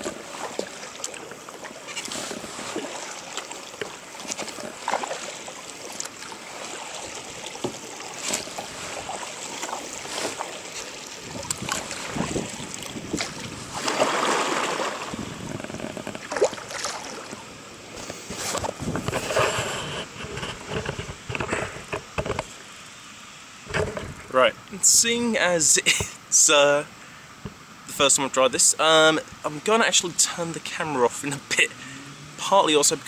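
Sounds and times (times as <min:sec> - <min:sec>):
paddle splashing into river water: 0:00.0 - 0:22.7
rush of water: 0:00.0 - 0:33.0.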